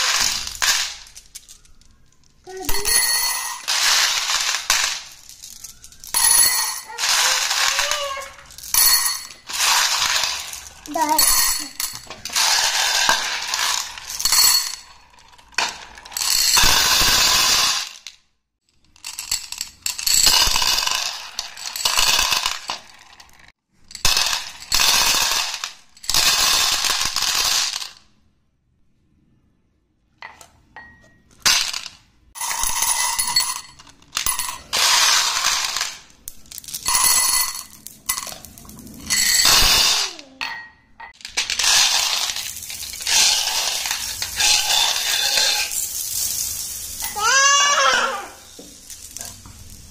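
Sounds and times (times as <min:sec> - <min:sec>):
glass marbles clinking together: 0:00.0 - 0:18.0, 0:32.4 - 0:49.8.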